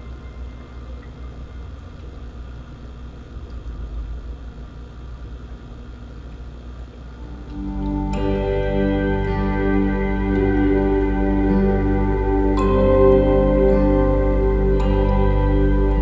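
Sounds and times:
soft new-age music: 7.2 - 16.0.

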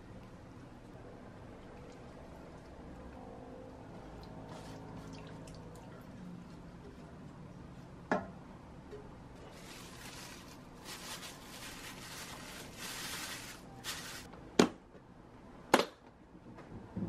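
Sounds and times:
plastic wrap crinkling: 9.4 - 14.3.

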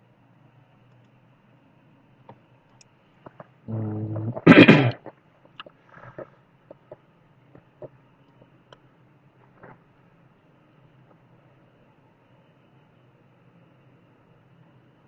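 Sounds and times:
person humming: 3.7 - 5.0
harsh sneeze-like breath blast: 4.3 - 5.0.

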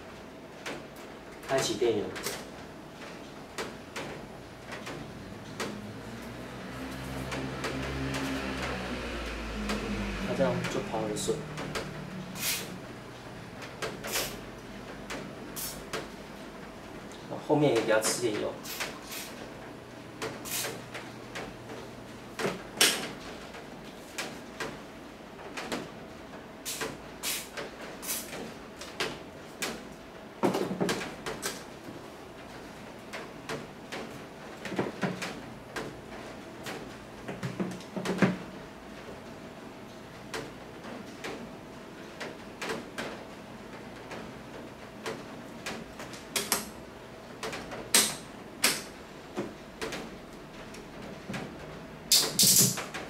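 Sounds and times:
short hisses: 12.4 - 12.8, 20.4 - 20.8.

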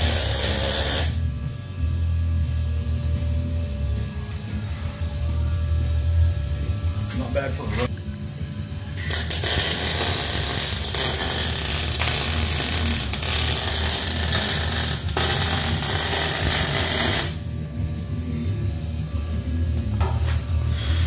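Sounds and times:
welder arc crackling: 0.0 - 1.2, 9.0 - 17.4.

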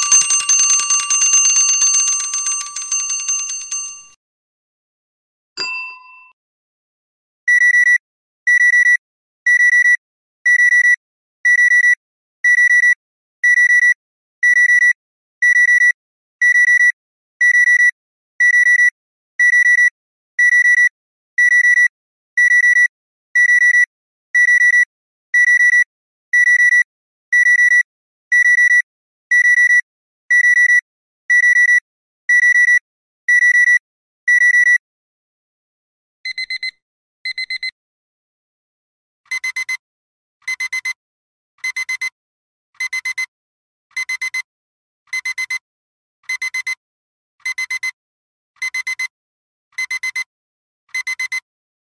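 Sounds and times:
alarm clock beeping: 0.0 - 4.2.

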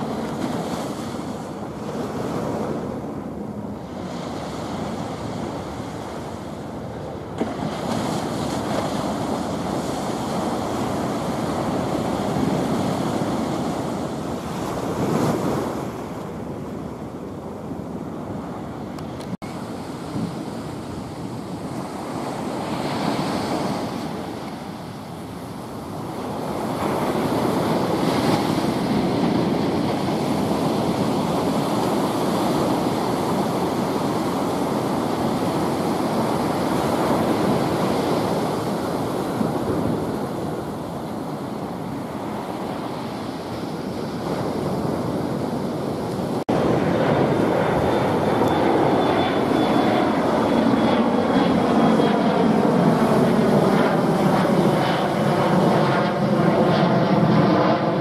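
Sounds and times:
faint jet whine: 0.0 - 58.0
jet plane roar: 0.0 - 58.0
ocean surf breaking: 0.0 - 58.0.

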